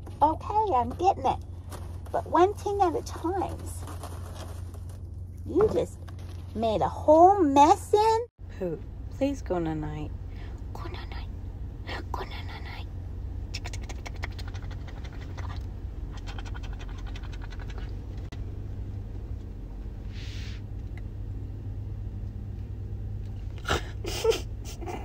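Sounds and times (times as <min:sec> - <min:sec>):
steady low hum: 0:00.0 - 0:25.0
animal sniffing and snuffling: 0:13.5 - 0:18.3
short breathy hiss: 0:20.1 - 0:20.7.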